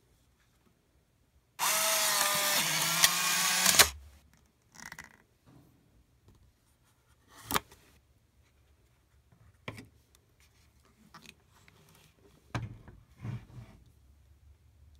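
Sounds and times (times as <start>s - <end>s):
camera clicks: 2.1s - 4.0s.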